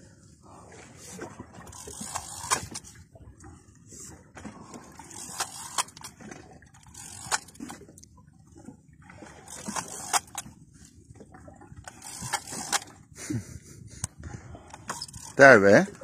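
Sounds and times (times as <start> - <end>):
water lapping against boat hull: 0.0 - 16.0.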